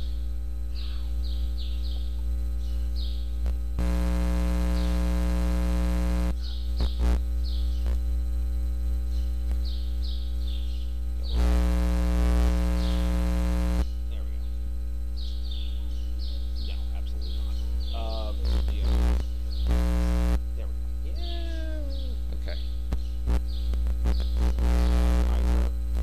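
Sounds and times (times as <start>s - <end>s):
electrical buzz: 0.0s - 26.0s
electrical mains hum: 0.0s - 26.0s.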